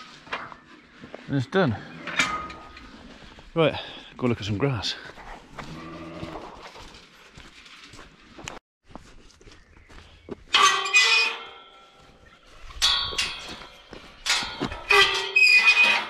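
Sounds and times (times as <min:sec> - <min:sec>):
metal gate clanging: 0:01.9 - 0:03.0, 0:10.5 - 0:16.0.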